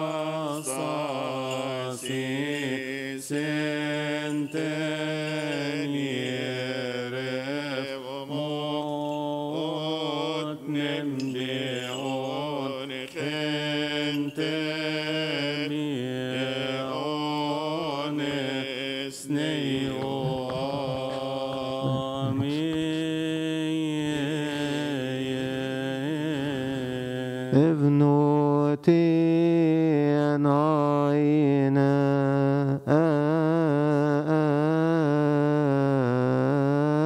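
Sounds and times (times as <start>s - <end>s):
man chanting a hymn: 0.0s - 37.0s.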